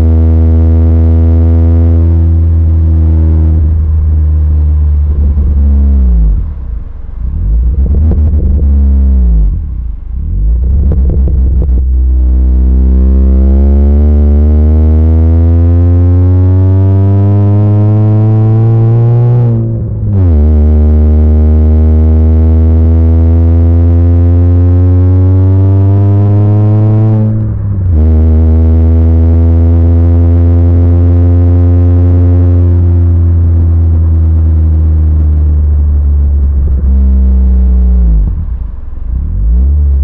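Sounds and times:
car engine droning: 0.0 - 40.0.

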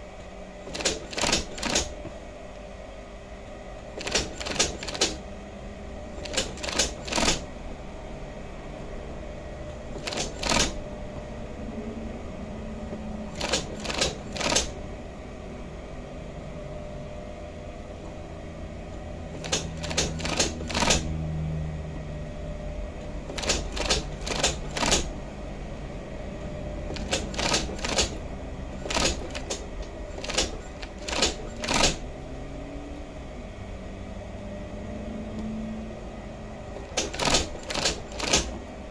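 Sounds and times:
sewing machine clicks: 0.6 - 2.0, 4.0 - 5.2, 6.2 - 7.5, 9.9 - 10.8, 13.3 - 14.8, 19.3 - 21.1, 23.3 - 25.1, 26.9 - 28.2, 28.8 - 32.0, 36.8 - 38.6
sewing machine motor hum: 0.6 - 2.2, 3.8 - 7.8, 9.7 - 10.9, 12.9 - 14.9, 19.2 - 21.4, 23.1 - 25.5, 26.5 - 33.0, 36.6 - 38.9.

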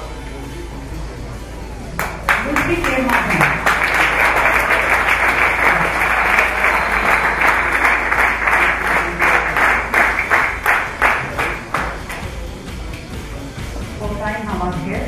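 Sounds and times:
audience applauding: 2.0 - 12.5.

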